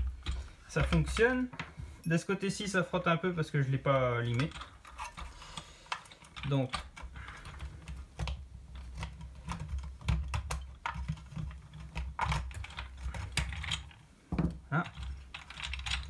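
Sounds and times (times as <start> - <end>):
plastic parts clicking and tapping: 0.0 - 1.8, 4.2 - 16.0.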